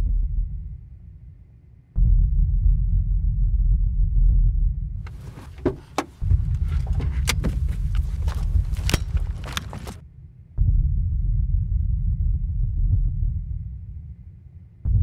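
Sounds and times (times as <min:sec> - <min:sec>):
loud deep rumble: 0:05.1 - 0:10.0
sharp clicks: 0:05.1 - 0:10.0.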